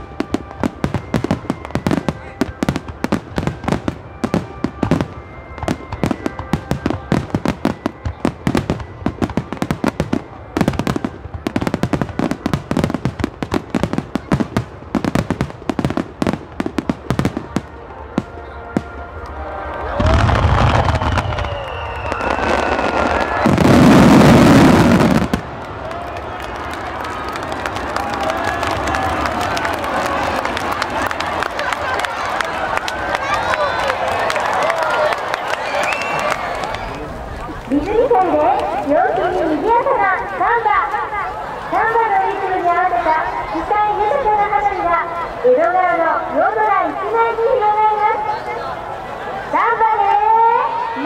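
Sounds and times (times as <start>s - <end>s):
fireworks bursting: 0.0s - 19.3s, 20.0s - 34.8s.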